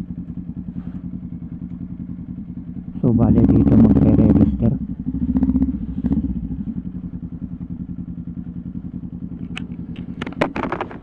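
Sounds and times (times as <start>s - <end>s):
motorcycle engine pulsing drone: 0.0s - 11.0s
sharp clicks and clatters: 9.4s - 11.0s.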